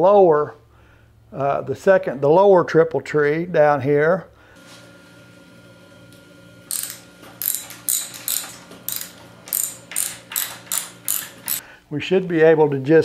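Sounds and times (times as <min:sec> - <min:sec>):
ratchet wrench clicking: 0:06.7 - 0:11.6.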